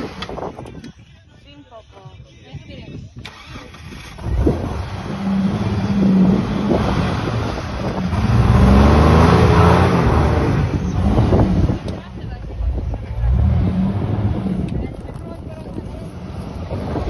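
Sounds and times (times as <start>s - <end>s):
engine revving under load: 3.3s - 14.9s
tyres churning sand: 4.2s - 17.0s.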